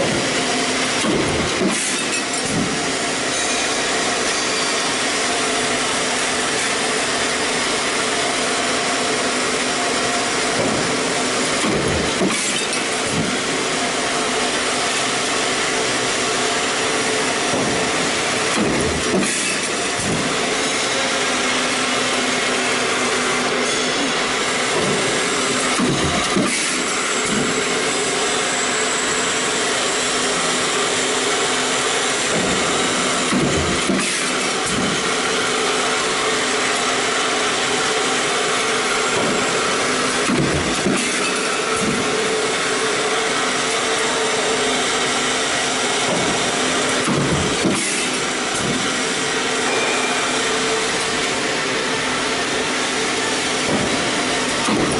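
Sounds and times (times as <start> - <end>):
stamping press hum and hiss: 0.0 - 54.9
stamping press knocks: 1.0 - 2.9, 25.8 - 26.6, 46.0 - 47.9.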